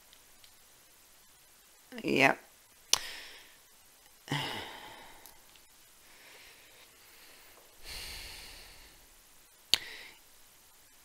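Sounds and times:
faint breath: 3.0s - 3.6s, 4.3s - 5.4s, 6.0s - 9.1s, 9.8s - 10.2s
person sighing: 4.3s - 5.4s.

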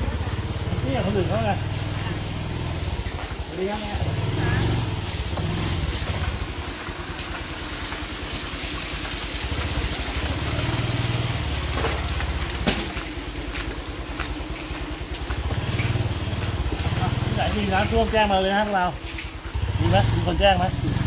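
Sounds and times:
vehicle engine rumbling: 0.0s - 21.0s.

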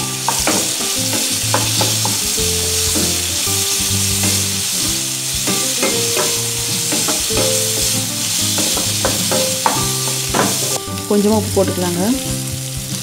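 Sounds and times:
spatula scraping and knocking pan: 0.0s - 10.8s
food sizzling in hot oil: 0.0s - 13.0s.

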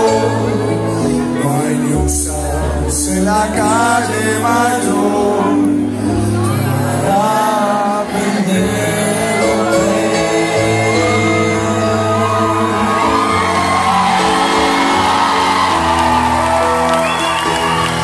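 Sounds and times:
man singing: 0.0s - 14.2s
live band playing: 0.0s - 18.0s
fans shouting and whooping: 10.8s - 18.0s.

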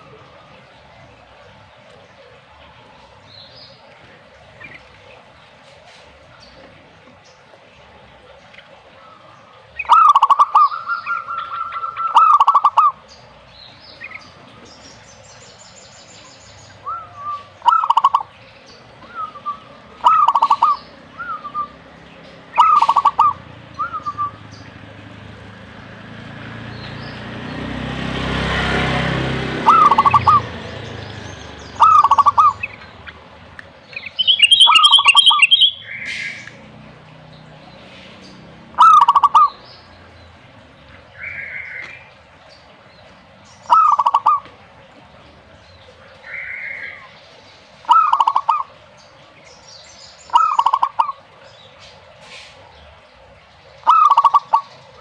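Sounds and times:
dove cooing: 9.0s - 13.1s, 16.8s - 25.6s, 29.5s - 31.1s, 31.7s - 33.3s, 38.7s - 39.6s, 43.7s - 44.6s, 47.9s - 48.8s, 50.3s - 51.2s, 53.8s - 55.0s.

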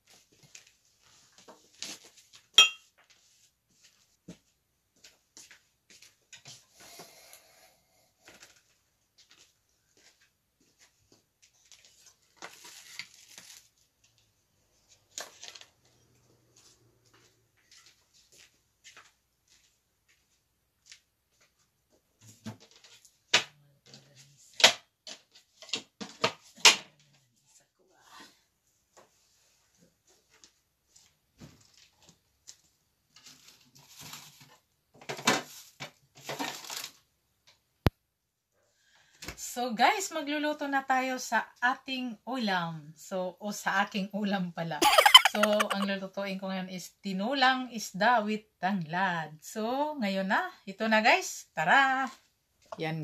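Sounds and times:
dishes clinking on a table: 2.6s - 2.9s.

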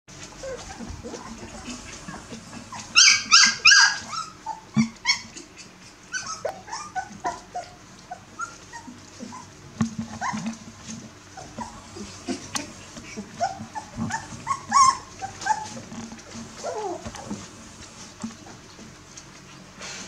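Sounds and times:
puppies yipping and whimpering: 0.2s - 18.8s
high-pitched puppy yelps: 2.7s - 5.4s, 6.1s - 9.5s, 13.4s - 15.8s, 16.6s - 17.1s.

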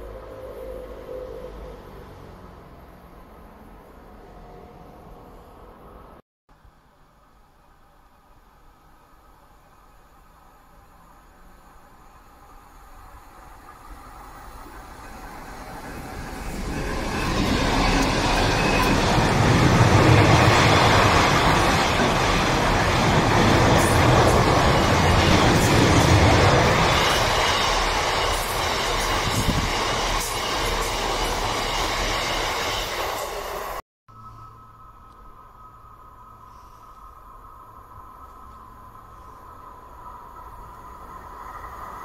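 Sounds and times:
freight train wheels rumbling: 11.4s - 33.8s.

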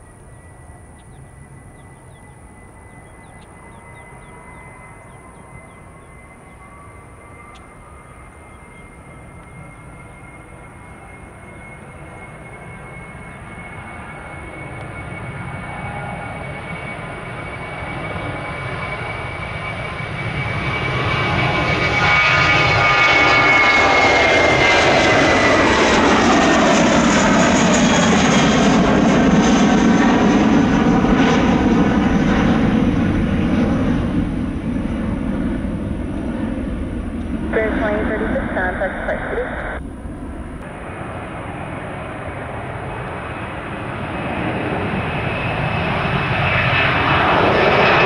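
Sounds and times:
high engine whine: 0.0s - 48.0s
jet airliner passing: 0.0s - 48.0s
low engine rumble: 24.1s - 46.4s.

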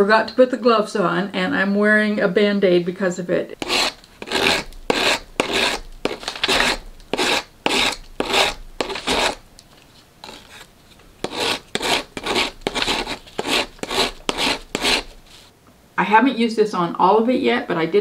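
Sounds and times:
rasp scraping dried clay: 3.6s - 9.4s, 10.2s - 15.5s.

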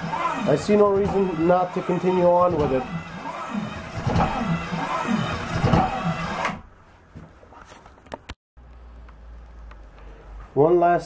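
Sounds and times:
power hacksaw sawing wood: 0.0s - 6.6s.

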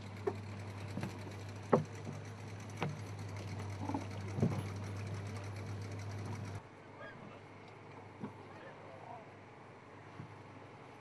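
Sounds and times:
boat motor idling: 0.0s - 6.6s
knocks against boat: 1.7s - 2.0s.

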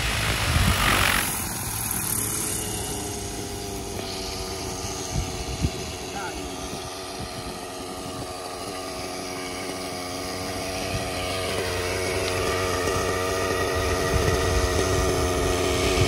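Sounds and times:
model helicopter engine idling: 0.0s - 16.0s
rotor winding down: 0.0s - 16.0s.

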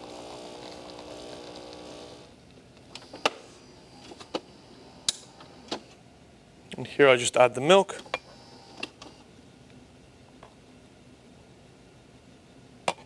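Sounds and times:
espresso machine pump humming: 0.0s - 2.4s.

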